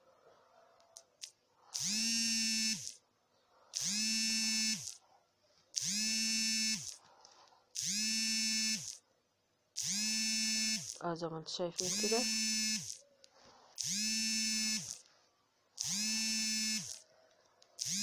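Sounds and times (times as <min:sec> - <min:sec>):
electric buzz: 0:01.8 - 0:03.0, 0:03.8 - 0:05.0, 0:05.8 - 0:07.0, 0:07.8 - 0:09.0, 0:09.8 - 0:11.0, 0:11.8 - 0:13.0, 0:13.8 - 0:15.0, 0:15.8 - 0:17.0, 0:17.8 - 0:18.0.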